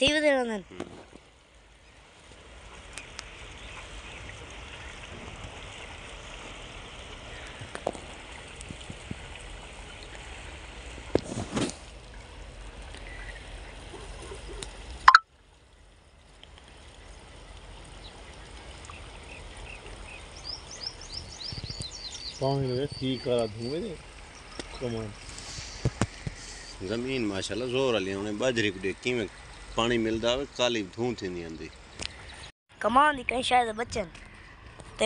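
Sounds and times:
outdoor background noise: 0.0s - 35.0s
birds chirping: 16.9s - 33.0s.

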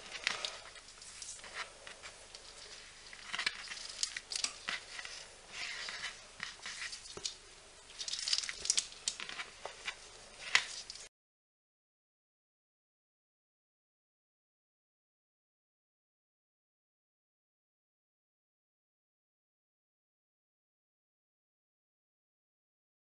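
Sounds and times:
cord rustling against fingers: 0.0s - 11.1s.

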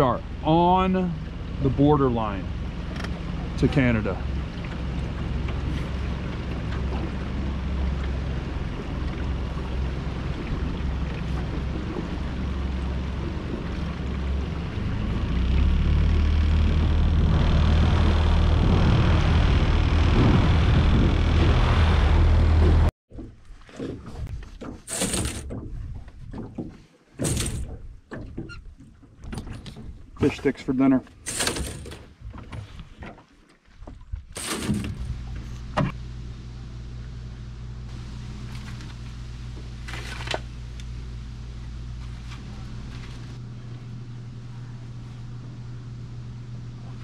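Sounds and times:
outboard motor running: 0.0s - 23.3s, 33.9s - 47.0s
low mechanical hum: 0.0s - 26.4s, 27.2s - 33.0s, 33.8s - 47.0s
rustle and click: 23.2s - 30.1s.

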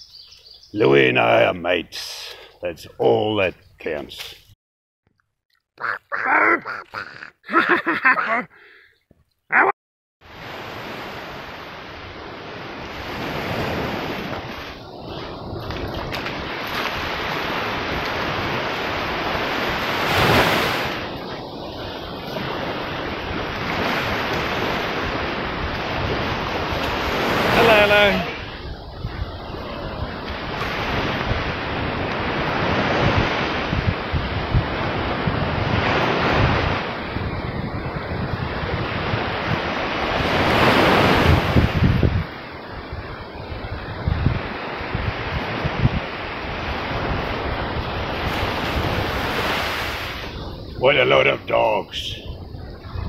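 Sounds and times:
small waves washing onto beach: 10.2s - 53.0s
wind buffeting microphone: 12.0s - 50.9s, 51.8s - 53.0s.

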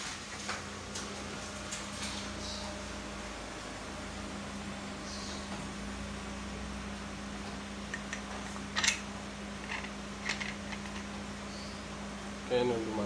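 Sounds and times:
steady low hum: 0.0s - 13.0s
metal parts clicking: 8.8s - 9.0s, 9.6s - 11.1s.

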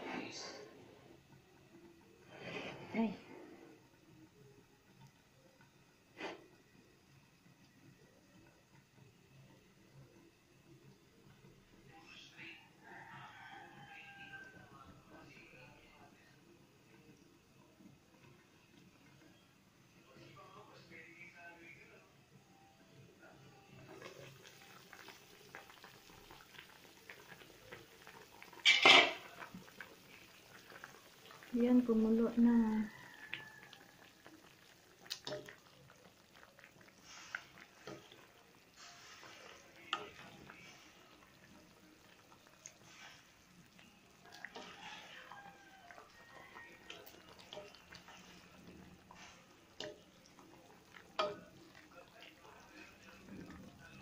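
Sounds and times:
broth bubbling at a boil: 0.6s - 54.0s
spatula clicking on pan: 51.1s - 51.5s.

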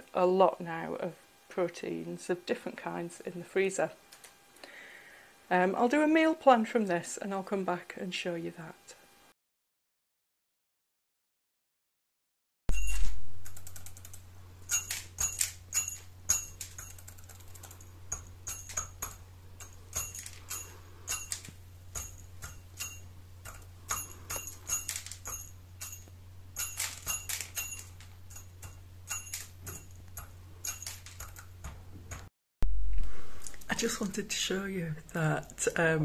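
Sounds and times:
low steady hum: 12.7s - 36.0s.

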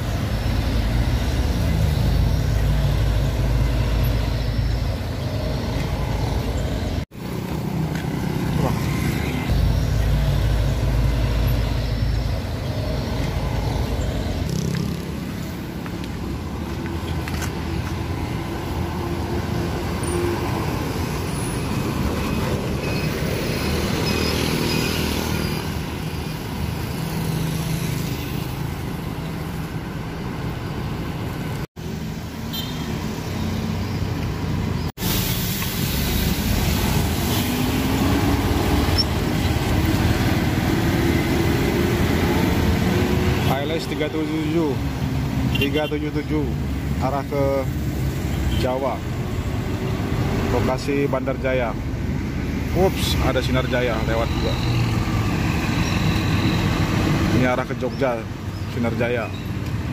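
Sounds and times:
cars passing: 0.0s - 59.9s
motorcycles passing: 0.1s - 29.8s.

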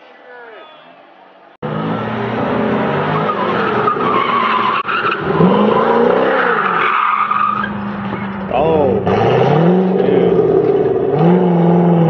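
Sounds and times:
sports car engine revving: 1.6s - 12.0s
tyres squealing: 2.8s - 11.7s.

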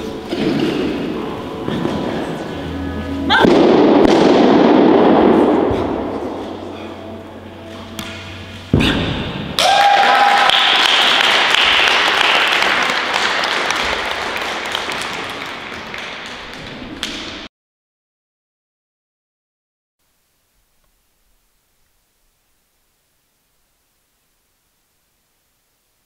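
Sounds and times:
thud: 8.7s - 9.6s
audience applause: 9.6s - 17.1s.

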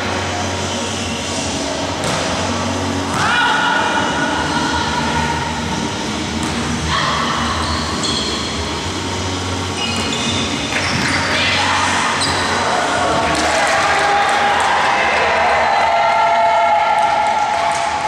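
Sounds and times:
volleyball being struck: 2.0s - 2.4s
high shoe squeaks: 7.6s - 8.5s, 9.7s - 11.4s.

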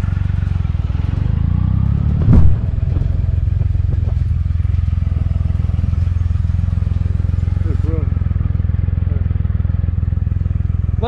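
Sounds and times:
motorcycle engine running: 0.0s - 11.0s
loud thump: 2.2s - 4.2s.

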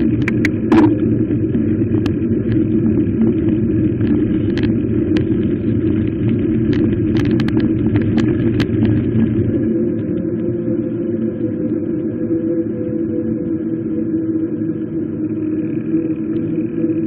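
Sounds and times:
sharp rattling clicks: 0.0s - 0.9s
bicycle tyres rumbling on cobblestones: 0.0s - 9.8s.

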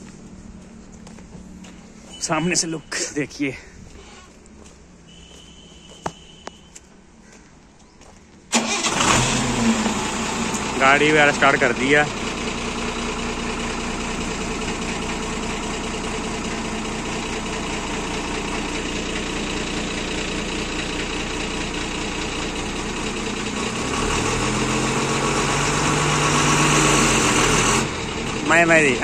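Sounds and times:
truck diesel engine idling and revving: 8.5s - 29.0s.

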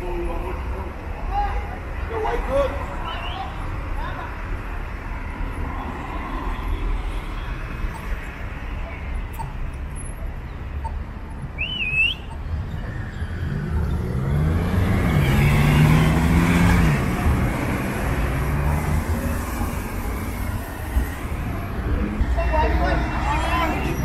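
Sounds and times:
car driving past: 12.9s - 22.2s.

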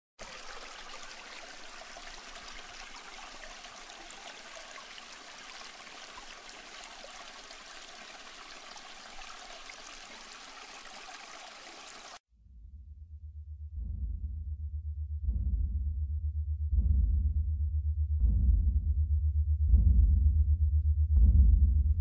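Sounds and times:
stream water babbling: 0.2s - 12.2s.

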